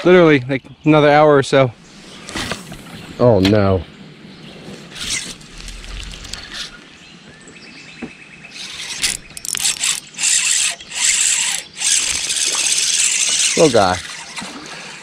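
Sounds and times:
fishing reel ratcheting: 8.6 - 15.0
rushing noises in bursts: 8.6 - 15.0.

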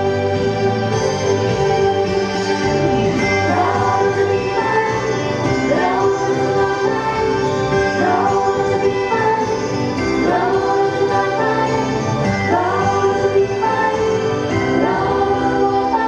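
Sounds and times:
amplified backing track: 0.0 - 16.0
women singing pop together: 3.2 - 16.0.

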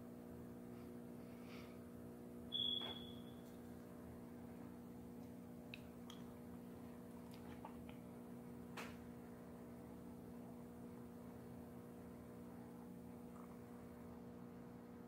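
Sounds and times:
steady low hum: 0.0 - 15.0
short high beep: 2.5 - 3.4.

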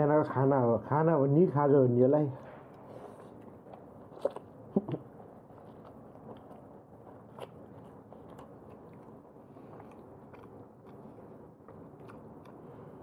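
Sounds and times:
person chewing food: 2.7 - 13.0.

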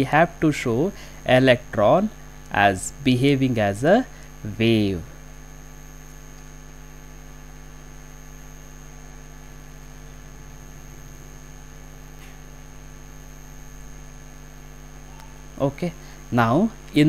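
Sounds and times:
high-pitched whine: 0.0 - 6.0, 9.9 - 17.0
mains hum: 0.0 - 17.0.

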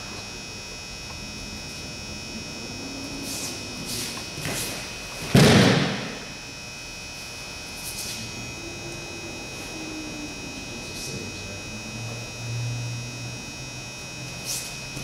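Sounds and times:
body thudding on a mat: 4.2 - 6.3.

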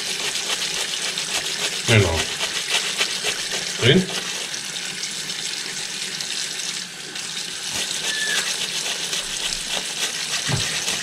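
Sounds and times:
brush scrubbing wet glass: 0.0 - 4.8, 7.5 - 11.0
water running: 0.0 - 11.0
brief squeak: 8.0 - 8.5.

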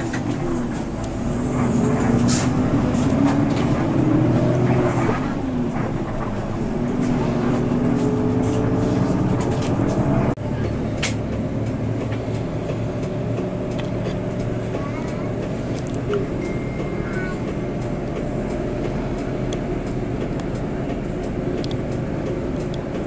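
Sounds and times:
bus engine and road noise: 0.0 - 23.0.

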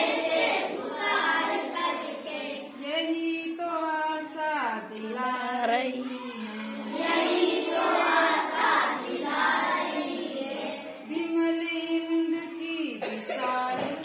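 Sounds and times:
children singing in unison: 0.0 - 2.9, 6.0 - 11.1.

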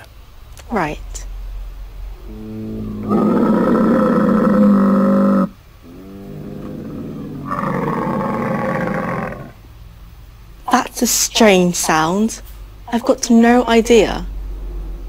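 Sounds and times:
camel calling: 2.2 - 9.6.

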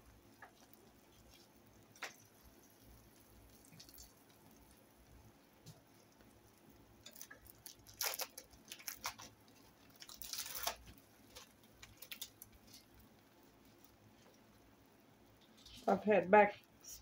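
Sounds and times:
wrapper crinkling and rustling: 7.0 - 13.9.

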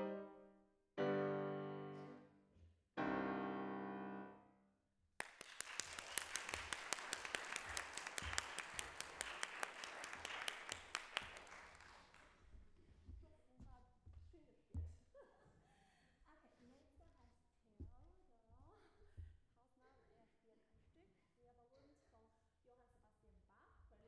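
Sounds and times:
piano chords ringing: 1.0 - 2.3, 3.0 - 4.4
audience applauding: 5.2 - 12.4.

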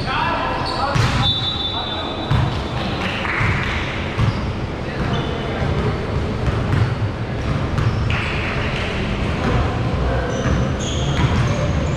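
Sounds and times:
basketball bouncing: 2.3 - 2.6, 3.2 - 4.4, 5.0 - 9.6
sneakers squeaking on hardwood: 4.2 - 5.6, 7.4 - 8.5, 10.2 - 11.9.

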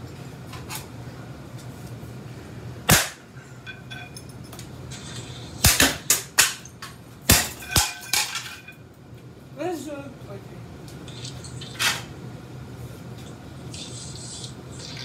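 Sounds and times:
low steady hum: 0.0 - 15.0
ceiling fan smashing cracks: 2.8 - 4.6, 5.6 - 8.8
high metallic ringing: 3.6 - 4.5.

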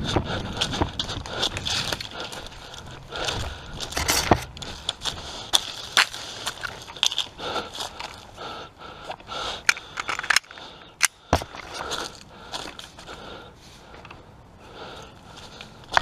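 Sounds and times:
footsteps crunching dry branches: 0.0 - 9.4, 11.3 - 14.0
twigs cracking: 0.6 - 8.3.

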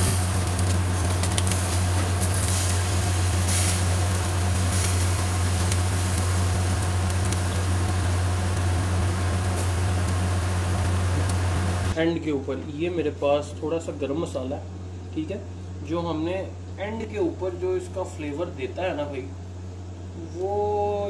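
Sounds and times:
low hum: 0.0 - 12.2
constant hiss: 0.0 - 21.0.

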